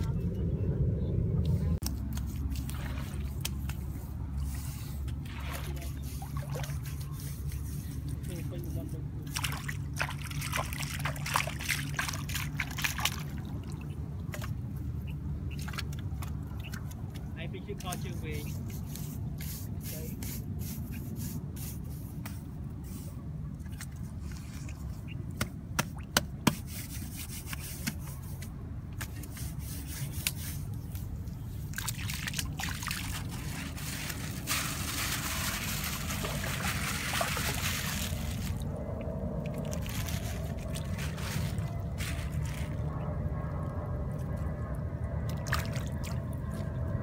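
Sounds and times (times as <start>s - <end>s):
water trickling and splashing: 1.8s - 19.0s, 29.2s - 43.7s, 44.3s - 47.0s
hand slapping wet mud: 25.3s - 26.6s.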